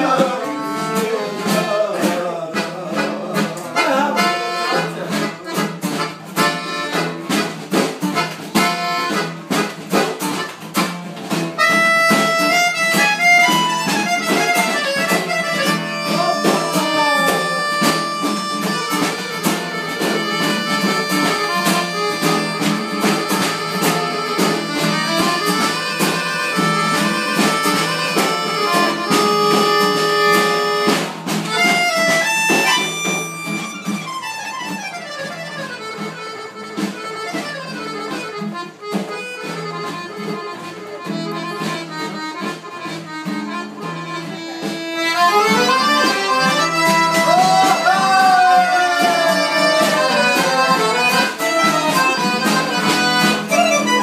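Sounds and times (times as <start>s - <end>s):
accordion playing lively tune: 0.0s - 54.0s.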